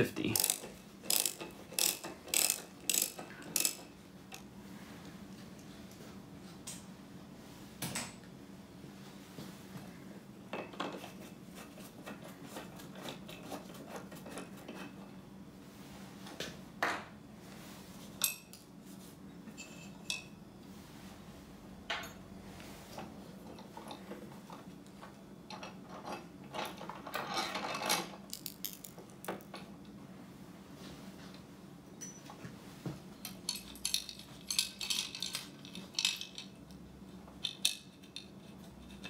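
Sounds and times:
metal tools clicking and clinking: 0.2 - 4.4, 18.2 - 18.6, 25.5 - 29.7, 32.0 - 32.3, 33.2 - 36.8, 37.4 - 39.0.

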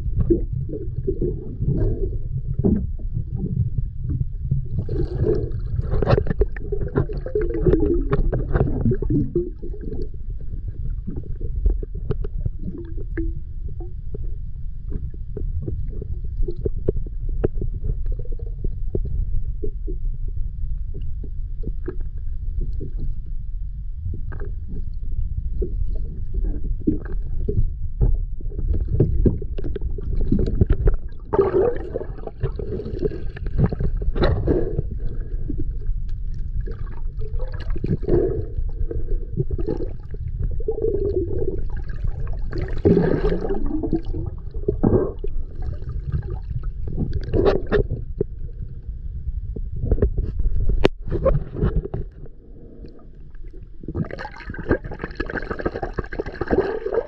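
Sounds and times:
low underwater rumble: 0.0 - 57.0
gurgling bursts: 31.2 - 34.9, 40.8 - 45.3, 53.8 - 57.0.

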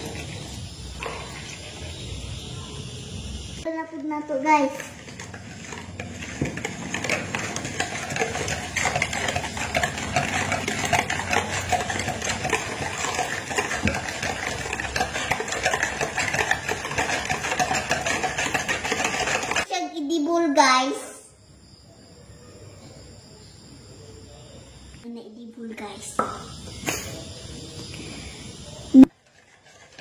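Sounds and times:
whisk beating in plastic bowl: 4.8 - 19.7.

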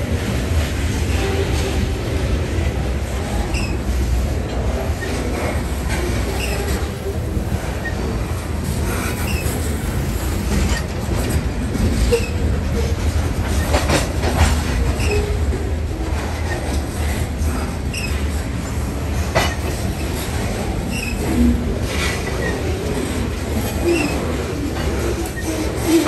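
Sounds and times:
train clatter: 0.0 - 26.0
train wheels rumbling on rail: 0.0 - 26.0
high wheel squeaks: 3.5 - 3.8, 8.9 - 11.4, 14.9 - 15.5.

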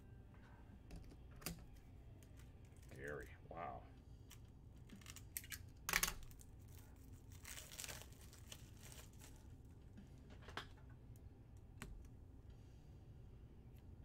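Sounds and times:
packaging crinkling and rustling: 4.8 - 9.7.

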